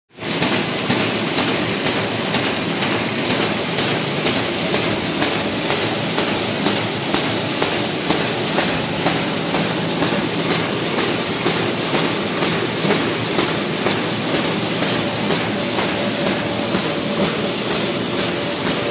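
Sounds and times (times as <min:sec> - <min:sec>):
machine clattering with regular knock: 0:00.2 - 0:18.9.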